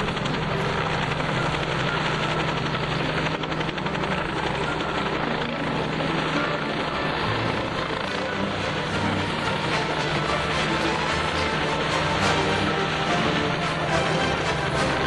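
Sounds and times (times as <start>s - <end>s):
helicopter hovering: 0.0s - 15.0s.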